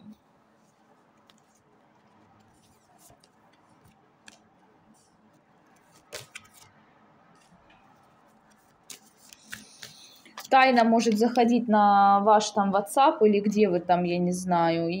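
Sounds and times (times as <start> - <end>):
cards clicking: 5.7 - 6.7, 8.5 - 10.5.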